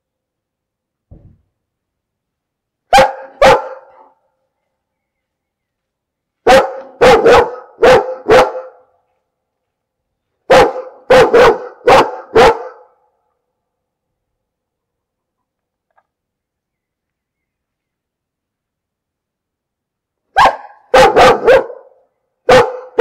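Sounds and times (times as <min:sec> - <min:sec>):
dog barking: 0:02.9 - 0:04.3, 0:06.4 - 0:08.9, 0:10.5 - 0:13.0, 0:20.3 - 0:23.0.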